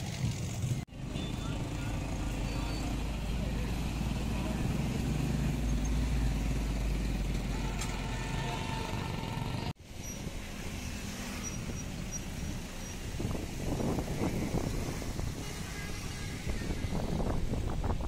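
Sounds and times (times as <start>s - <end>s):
truck engine passing: 0.9s - 15.4s.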